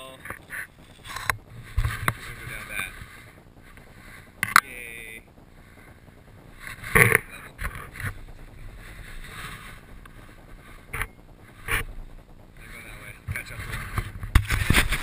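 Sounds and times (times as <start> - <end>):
skis scraping and knocking on bumps: 0.2 - 4.8, 6.5 - 11.9, 12.6 - 15.0
ski edges hissing over snow: 0.5 - 11.9.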